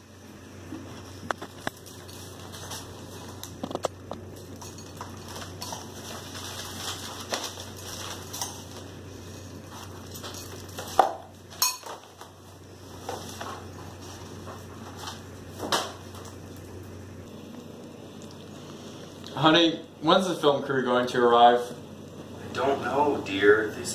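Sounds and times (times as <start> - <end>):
newspaper rustling: 4.9 - 16.2
spoon clinking in a bowl: 11.6 - 12.0.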